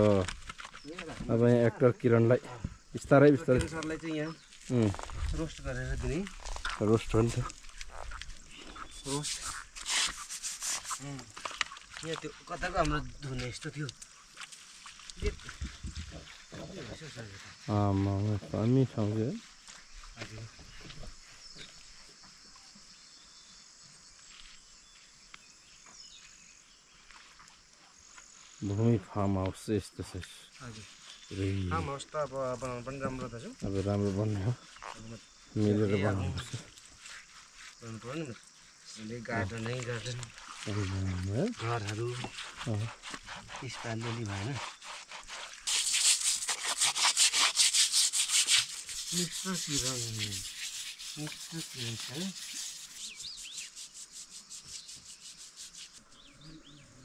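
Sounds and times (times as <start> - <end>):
insects chirping: 0.0 - 57.0
fast scraping strokes: 8.0 - 11.8, 40.4 - 56.2
person speaking: 49.0 - 50.5.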